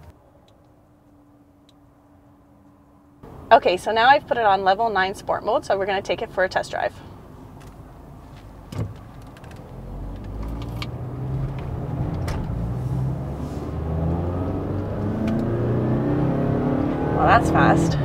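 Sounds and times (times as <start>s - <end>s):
car engine accelerating: 9.5s - 18.0s.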